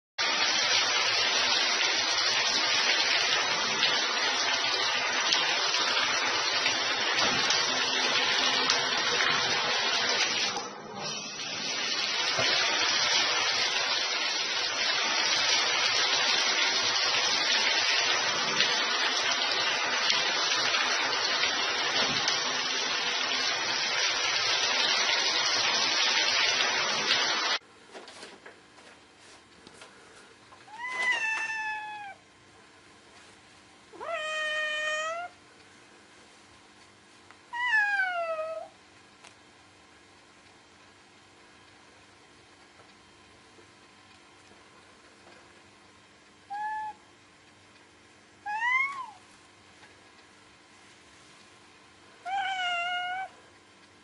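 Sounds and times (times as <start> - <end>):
shower spraying into bathtub: 0.2 - 27.6, 30.7 - 32.2.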